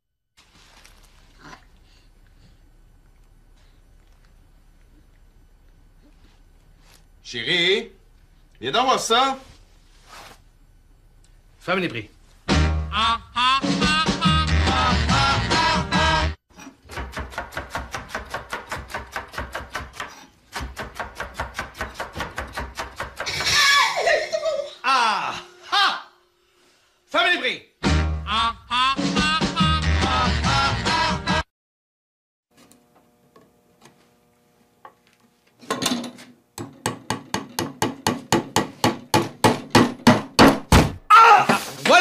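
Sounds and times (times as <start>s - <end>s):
faint low hum: 0.4s - 12.5s
sharp knocks: 36.6s - 41.0s.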